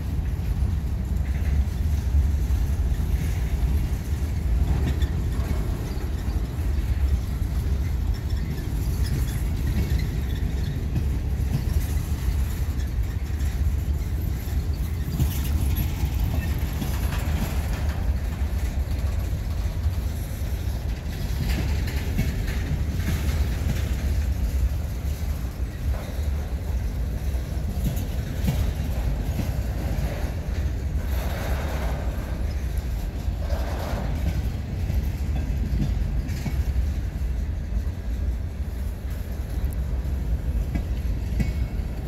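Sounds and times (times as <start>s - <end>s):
freight train rumbling by: 0.0s - 42.0s.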